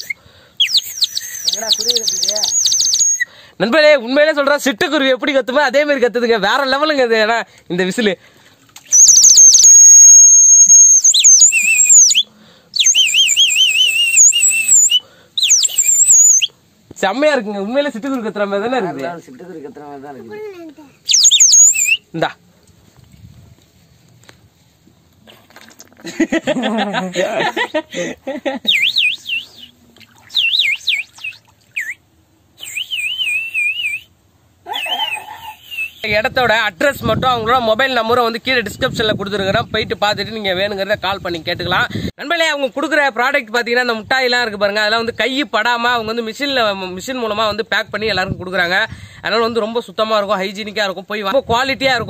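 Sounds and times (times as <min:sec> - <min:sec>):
water whistle chirping and trilling: 0:00.0 - 0:03.3, 0:08.8 - 0:16.5, 0:21.1 - 0:22.0, 0:28.7 - 0:32.0, 0:32.6 - 0:34.1.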